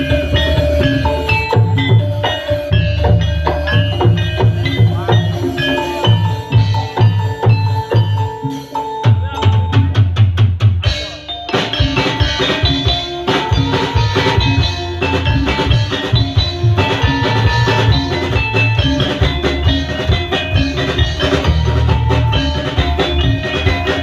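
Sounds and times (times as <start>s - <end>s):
low held bass notes: 0.0s - 8.5s, 11.9s - 24.0s
drum kit steady beat: 0.0s - 24.0s
metallophones and gongs: 0.0s - 24.0s.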